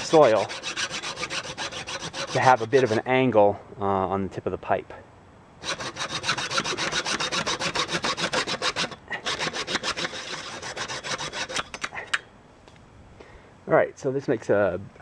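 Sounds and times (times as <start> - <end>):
hacksaw cutting pipe: 0.0 - 3.1, 5.6 - 12.2.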